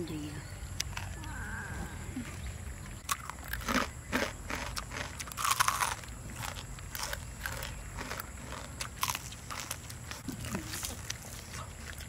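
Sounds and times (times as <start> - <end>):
chewing crispy chicken crunches: 3.0 - 12.0.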